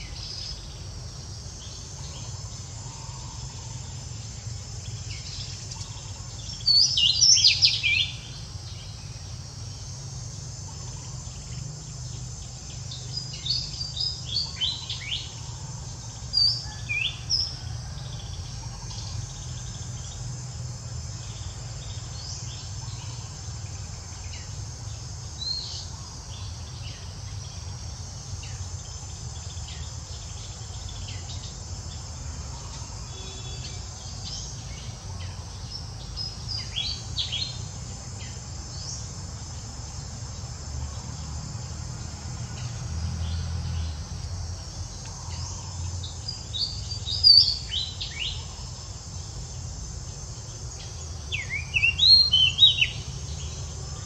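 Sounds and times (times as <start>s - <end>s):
insects buzzing: 0.0s - 54.0s.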